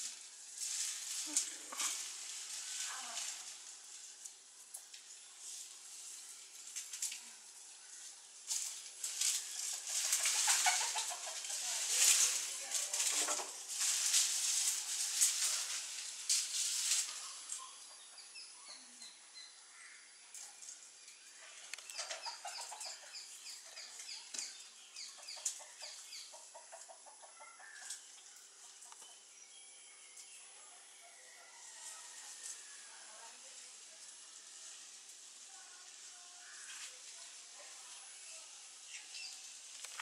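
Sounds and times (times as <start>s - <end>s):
small birds chirping: 0.7s - 31.4s, 32.9s - 40.0s
loud rustling: 8.5s - 17.5s.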